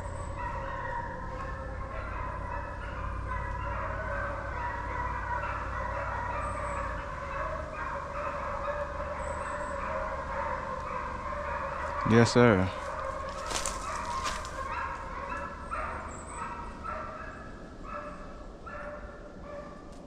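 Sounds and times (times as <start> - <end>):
hounds baying in chorus: 0.0 - 20.0.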